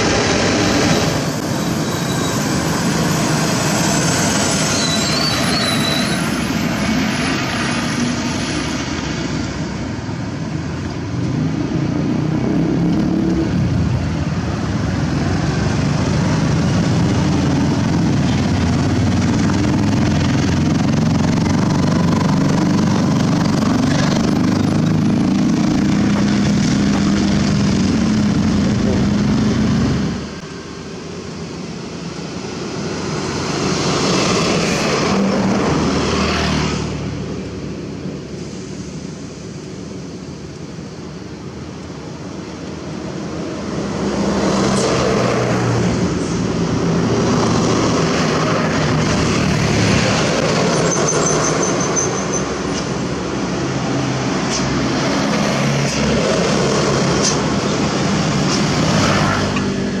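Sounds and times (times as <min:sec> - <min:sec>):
truck diesel engine passing: 0:00.0 - 0:39.5, 0:41.1 - 1:00.0
truck engine approaching: 0:00.0 - 1:00.0
motorcycle passing: 0:15.0 - 0:30.2.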